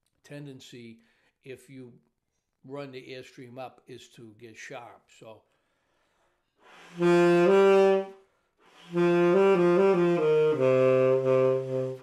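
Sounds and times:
tenor saxophone playing: 0:06.7 - 0:12.0.

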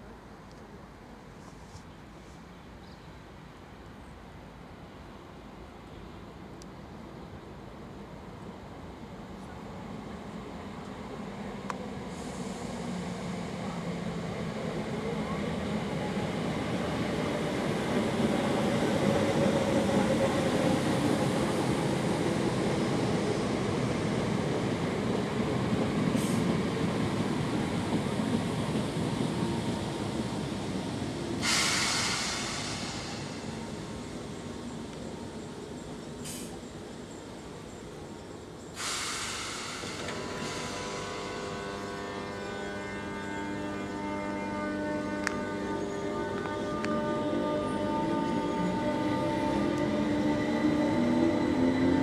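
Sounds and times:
train running into station: 0:00.0 - 0:52.0
short hiss: 0:26.2 - 0:26.5, 0:31.4 - 0:33.9, 0:36.2 - 0:36.6, 0:38.7 - 0:41.4.

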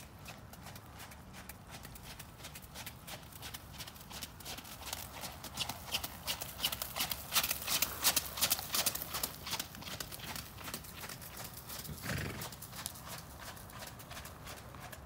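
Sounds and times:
horse hoofbeats on wet sand: 0:00.0 - 0:15.0.

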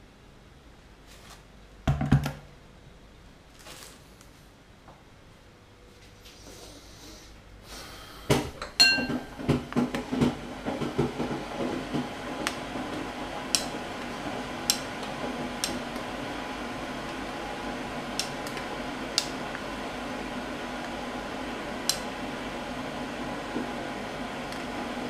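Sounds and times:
boiling pot hissing: 0:06.3 - 0:25.0
metal spoon clinking on pot: 0:08.7 - 0:09.3.

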